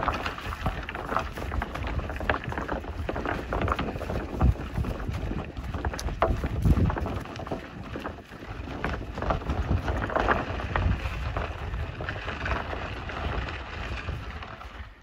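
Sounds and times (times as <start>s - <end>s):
footsteps crunching on dirt trail: 0.0s - 15.0s
wind buffeting microphone: 0.0s - 15.0s.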